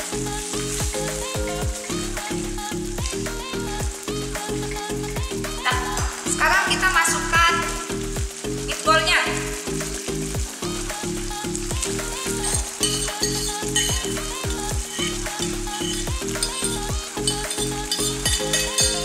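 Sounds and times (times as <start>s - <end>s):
background music with beat: 0.0s - 19.0s
sauce sizzling and bubbling: 0.0s - 19.0s
spatula stirring in wok: 15.8s - 19.0s.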